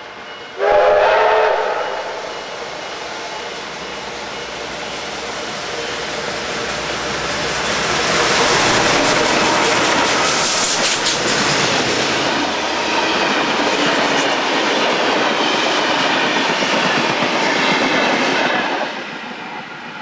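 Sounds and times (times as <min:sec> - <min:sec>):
train wheels clattering over rails: 0:03.4 - 0:19.6.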